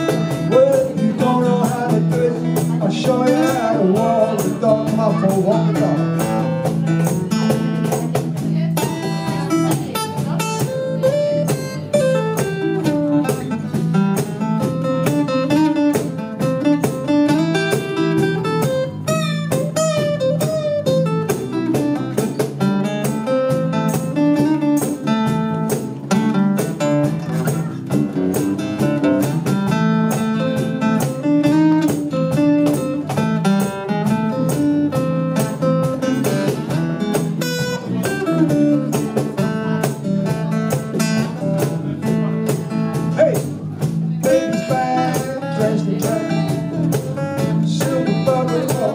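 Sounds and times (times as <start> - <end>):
band playing bluesy instrumental: 0.0 - 48.9.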